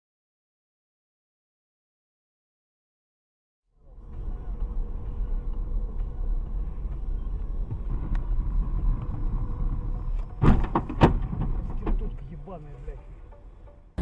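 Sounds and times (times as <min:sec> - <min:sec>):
car interior rumble: 0:03.8 - 0:13.7.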